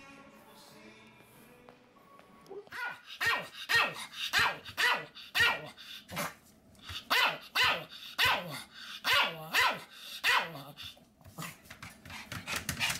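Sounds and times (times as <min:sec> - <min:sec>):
small dog barking: 0:02.7 - 0:06.4, 0:07.1 - 0:10.7.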